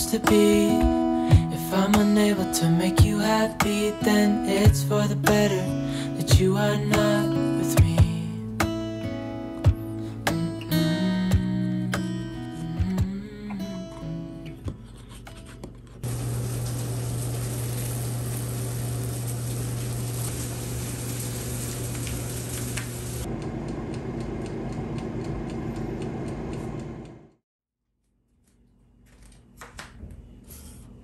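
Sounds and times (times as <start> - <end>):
motor-driven fan humming: 16.0 - 27.4.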